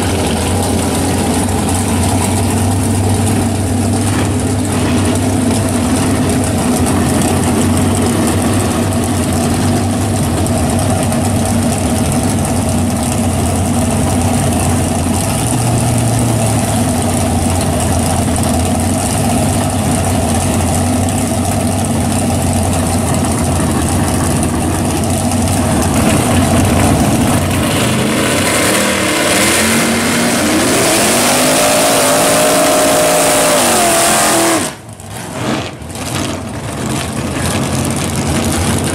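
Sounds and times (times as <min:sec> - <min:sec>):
car engine idling: 0:00.0 - 0:38.9
engine revving in burnout: 0:25.5 - 0:38.9.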